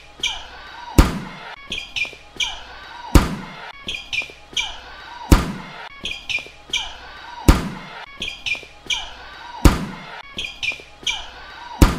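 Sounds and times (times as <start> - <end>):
short high squeaks: 0.2 - 0.6, 1.6 - 2.8, 3.7 - 4.9, 5.9 - 7.1, 8.1 - 9.5, 10.2 - 11.7
volleyball being struck: 1.0 - 1.5, 3.1 - 3.6, 5.3 - 5.8, 7.5 - 8.0, 9.6 - 10.2.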